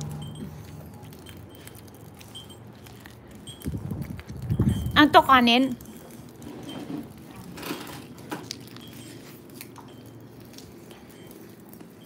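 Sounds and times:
wood fire crackling and popping: 0:00.0 - 0:11.9.

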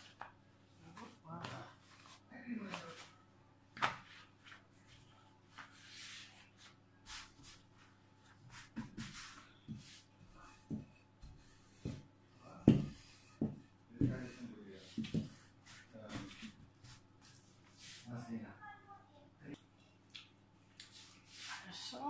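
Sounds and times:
rolling pin thumping dough: 0:10.6 - 0:15.4.

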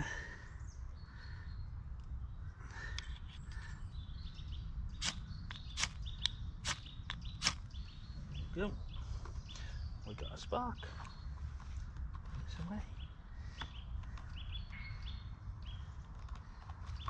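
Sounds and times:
faint birdsong: 0:00.0 - 0:17.0
ferro rod scraped with striker: 0:05.0 - 0:06.0, 0:06.6 - 0:07.6.

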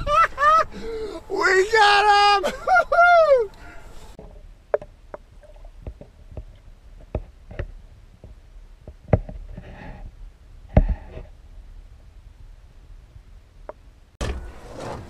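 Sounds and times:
muffled underwater knocks and clunks: 0:04.2 - 0:09.4.

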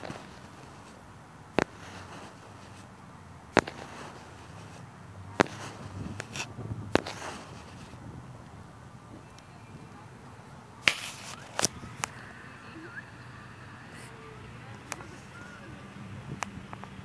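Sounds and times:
low steady background noise: 0:00.0 - 0:17.0
sharp clicks: 0:03.6 - 0:04.8, 0:10.8 - 0:15.3.

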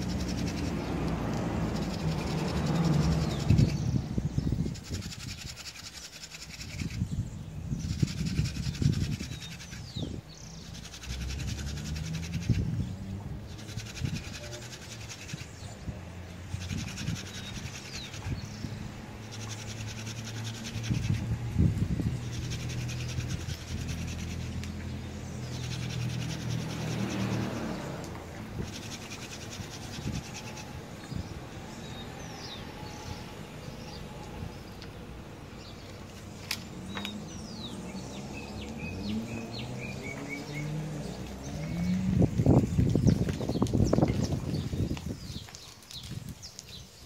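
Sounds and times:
wooden spindle rubbing on wood: 0:00.0 - 0:03.9, 0:04.6 - 0:07.1, 0:07.8 - 0:12.8, 0:13.4 - 0:18.5, 0:19.1 - 0:27.9, 0:28.6 - 0:30.8.

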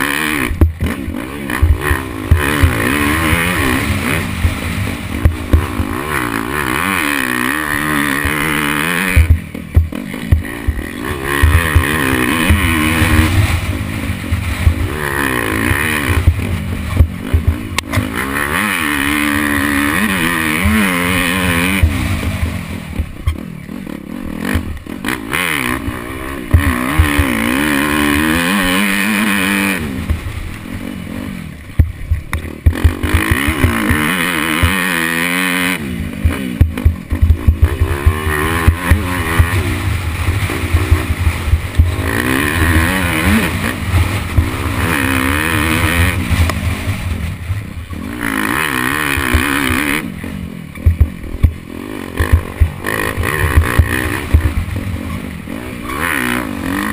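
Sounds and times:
motorcycle engine revving: 0:00.0 - 0:56.9.

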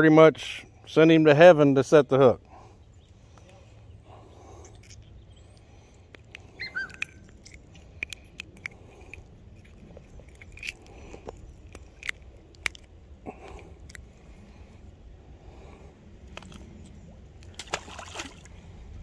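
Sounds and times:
hands handling fish and hook: 0:04.6 - 0:14.6, 0:16.2 - 0:17.8
chirp-like whistle: 0:06.6 - 0:07.2.

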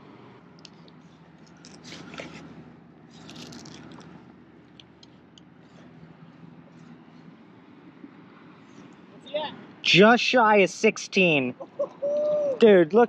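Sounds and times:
fish handling scrapes and rustles: 0:01.6 - 0:04.1.

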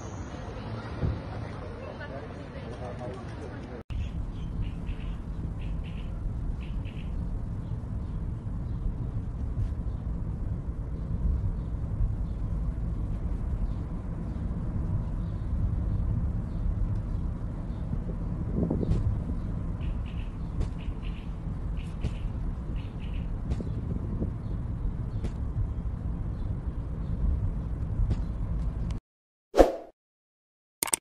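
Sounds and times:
small bird chirping: 0:03.9 - 0:09.0, 0:18.8 - 0:27.3
steady low rumble: 0:03.9 - 0:29.0.

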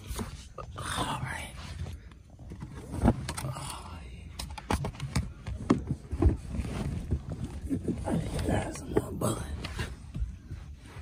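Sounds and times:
microphone handling knocks and clicks: 0:04.3 - 0:10.8.

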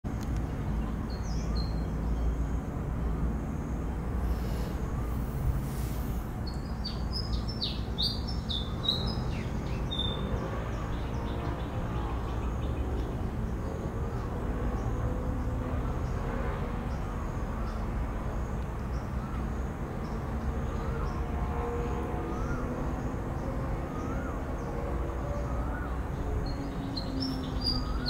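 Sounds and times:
birds chirping: 0:00.2 - 0:21.3, 0:22.3 - 0:28.0.

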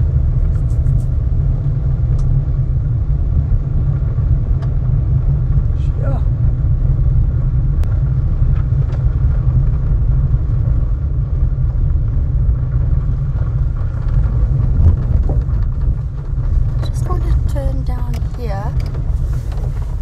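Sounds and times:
car rolling on gravel road: 0:00.0 - 0:20.0.

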